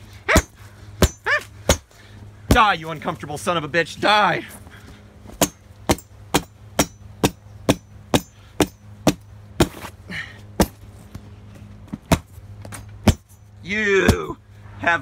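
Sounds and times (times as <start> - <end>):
sword chopping on pillow: 13.0 - 13.3.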